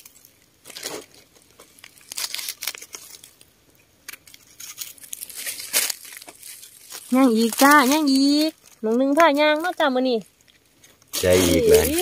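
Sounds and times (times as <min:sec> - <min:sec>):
crinkly rustling: 0:00.0 - 0:12.0.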